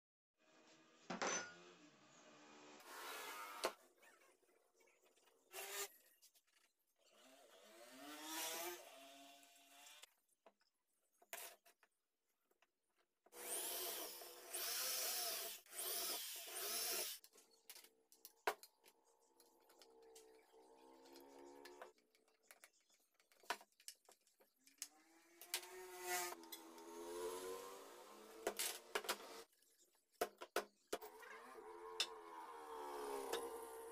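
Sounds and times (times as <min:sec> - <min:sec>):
power drill running: 0:13.4 - 0:17.2.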